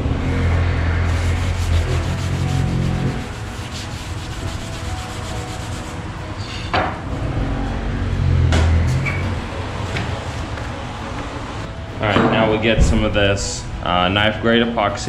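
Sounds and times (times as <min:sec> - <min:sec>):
rag rubbing on countertop: 0:01.1 - 0:06.0.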